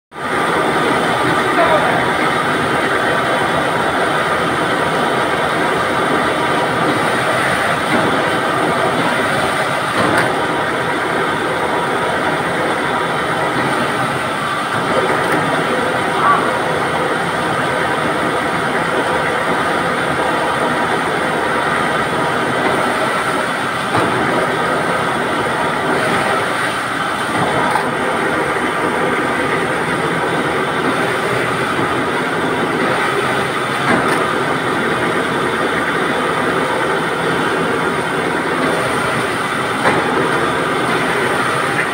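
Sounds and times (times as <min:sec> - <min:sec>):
fleshing machine running: 0:00.2 - 0:41.9.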